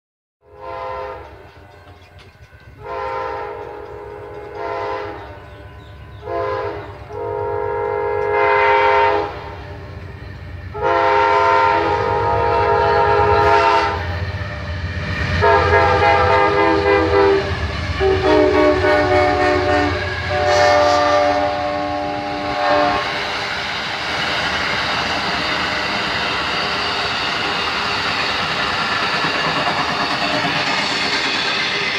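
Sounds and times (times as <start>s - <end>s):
locomotive air horn blasts: 0.4s - 1.8s, 2.8s - 9.7s, 10.7s - 14.1s, 15.4s - 23.2s
train wheels clacking on rails: 1.1s - 31.9s.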